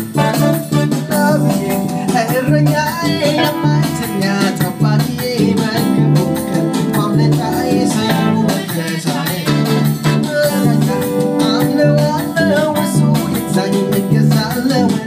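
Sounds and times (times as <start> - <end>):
electric guitar: 0.0 - 15.0
electronic keyboard: 0.0 - 15.0
steady beat: 0.0 - 15.0
voices singing: 1.4 - 15.0.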